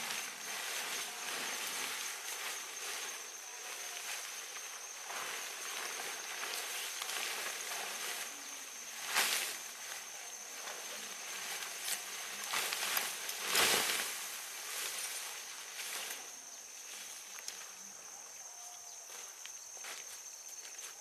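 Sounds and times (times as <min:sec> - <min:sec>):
tent fabric swishing: 0:00.0 - 0:16.2.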